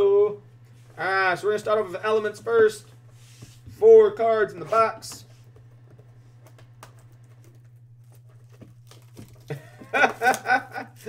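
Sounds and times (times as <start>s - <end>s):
man talking: 0.0s - 0.4s, 1.0s - 2.9s, 3.7s - 5.3s
low steady hum: 0.0s - 11.0s
card box crinkling and clicks: 5.7s - 10.6s.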